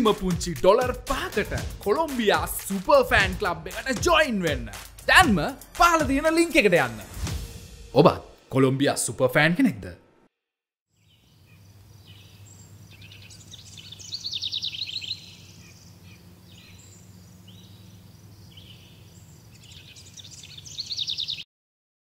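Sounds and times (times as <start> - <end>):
birds and insects trilling: 10.9 - 21.4.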